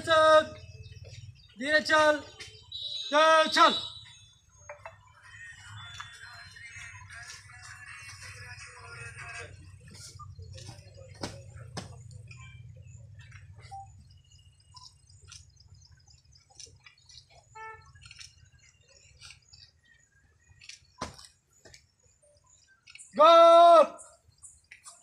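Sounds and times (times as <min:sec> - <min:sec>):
hushed gathering: 0:00.0 - 0:21.0
person shouting a command: 0:03.1 - 0:03.9, 0:23.2 - 0:24.0.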